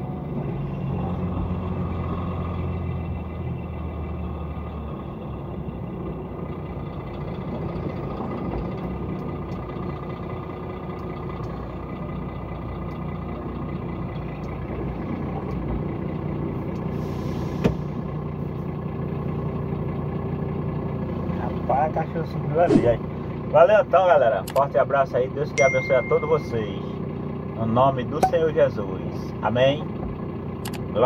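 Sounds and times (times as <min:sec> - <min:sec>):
truck diesel engine running: 0:00.0 - 0:31.0
sharp click: 0:30.6 - 0:30.8.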